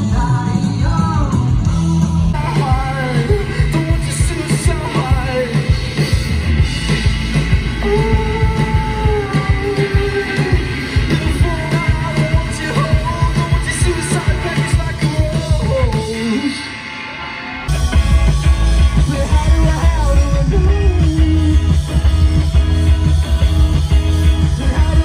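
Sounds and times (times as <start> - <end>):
steady drum beat: 0.0 - 16.6, 17.7 - 25.0
heavy bass: 0.0 - 25.0
singer holding long notes: 7.6 - 16.8.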